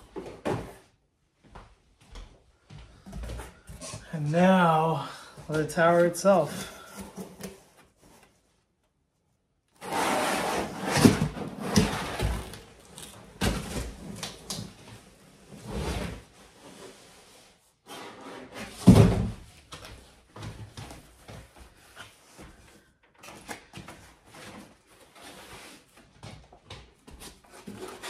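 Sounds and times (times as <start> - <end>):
cardboard and foam rustling: 5.8 - 8.7, 18.5 - 28.0.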